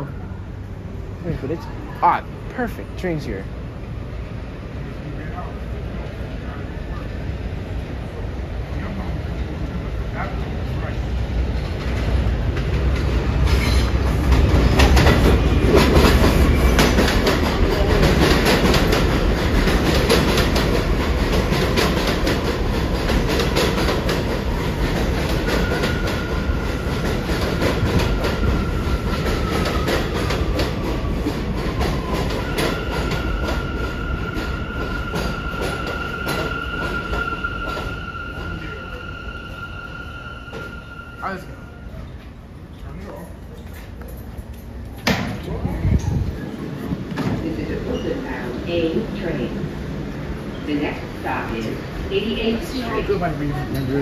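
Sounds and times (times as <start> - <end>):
train wheels rumbling over rail joints: 11.4 - 37.9
high brake squeal: 32.4 - 42.2.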